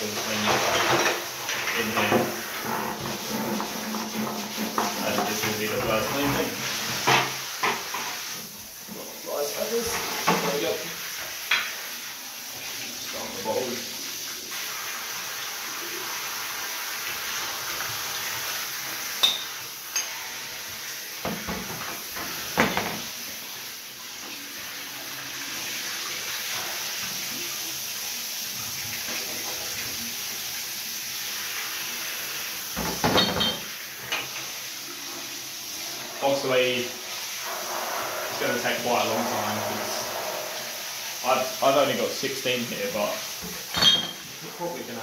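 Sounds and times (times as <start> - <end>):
shower head spraying into bathtub: 0.0 - 45.0
glass bottles clinking: 19.2 - 20.1, 33.0 - 33.7, 43.7 - 44.2.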